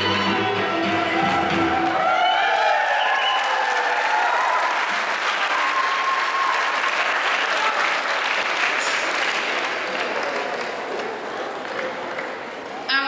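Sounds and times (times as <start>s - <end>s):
folk dance music: 0.0s - 2.0s
audience applauding: 0.9s - 12.6s.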